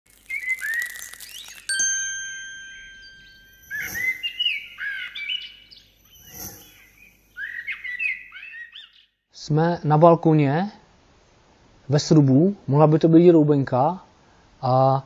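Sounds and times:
bird chirps: 0.1s - 9.2s
chime ringing: 0.6s - 7.7s
soft swish: 3.7s - 4.6s, 6.2s - 7.0s.

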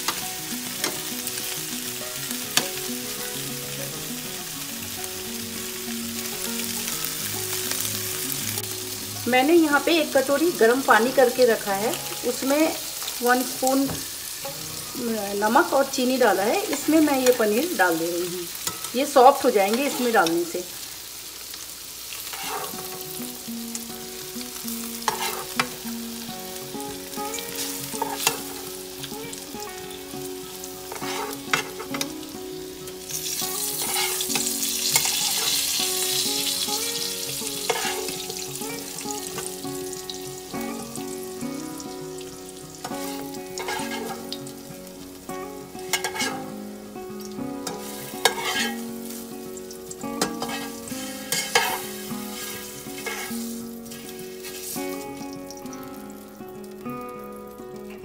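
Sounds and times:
cheese sizzling in hot oil: 0.0s - 58.0s
spatula scraping and knocking pan: 22.3s - 23.0s, 25.0s - 25.8s, 28.0s - 28.5s, 30.9s - 32.1s, 33.8s - 35.6s, 37.6s - 38.3s, 42.8s - 44.3s, 45.9s - 46.4s, 47.7s - 48.8s, 50.2s - 54.6s.

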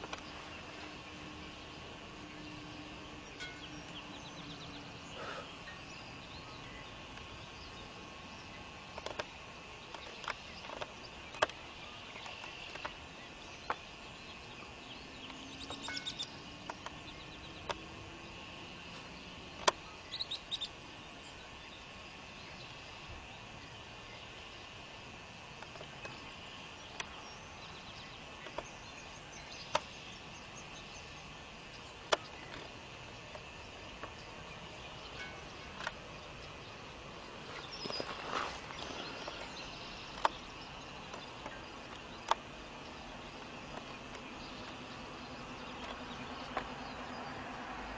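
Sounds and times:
insects chirring: 0.0s - 47.9s
sharp clicks: 19.5s - 19.8s, 29.6s - 29.9s, 38.7s - 42.5s.

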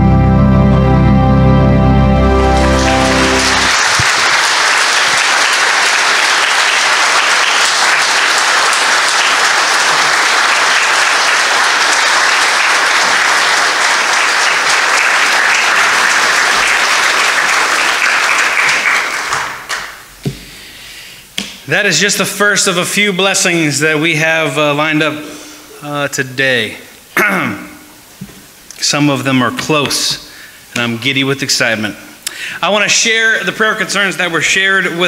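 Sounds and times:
musical note: 0.0s - 4.1s
congregation applauding: 1.4s - 20.2s.

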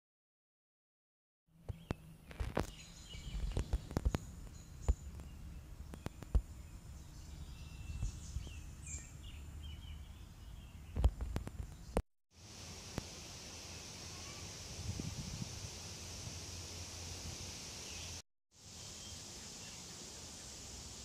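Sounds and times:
small birds chirping: 1.6s - 12.0s, 17.3s - 21.0s.

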